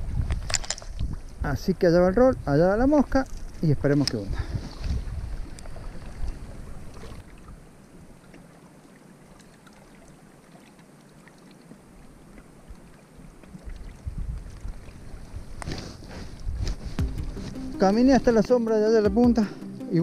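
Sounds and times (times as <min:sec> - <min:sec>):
wind buffeting microphone: 0:00.0 - 0:07.2, 0:13.6 - 0:17.5.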